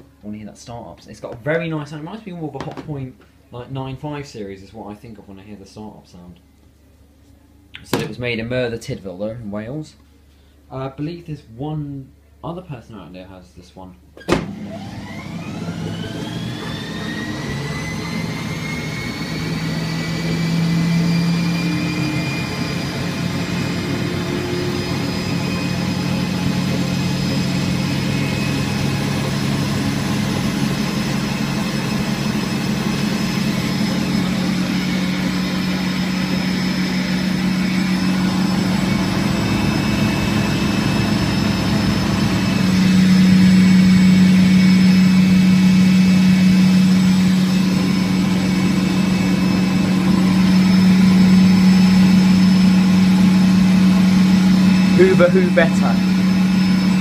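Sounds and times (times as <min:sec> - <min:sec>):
spin dryer motor hum: 0:14.3 - 0:57.0.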